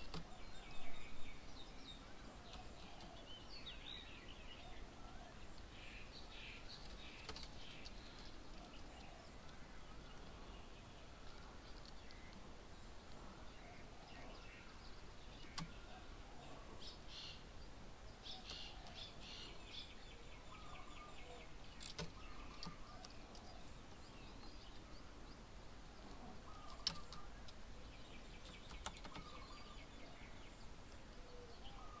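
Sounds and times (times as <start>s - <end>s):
low outdoor background: 0.0s - 32.0s
sharp clicks: 15.4s - 15.8s, 21.7s - 23.5s, 26.7s - 27.6s, 28.4s - 29.3s
birds whistling and trilling: 18.2s - 25.4s, 26.0s - 32.0s.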